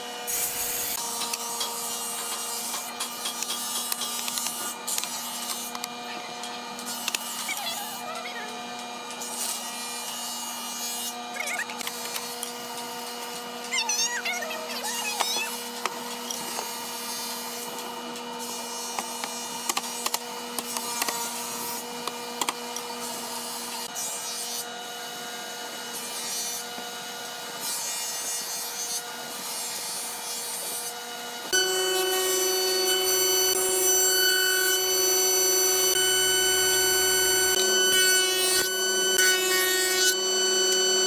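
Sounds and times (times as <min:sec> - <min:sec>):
machine hum: 0:31.5 - 0:41.0.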